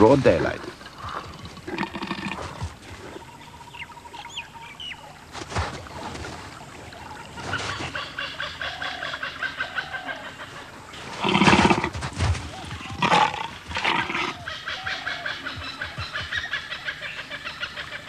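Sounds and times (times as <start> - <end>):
harsh animal calls: 12.6 - 18.0.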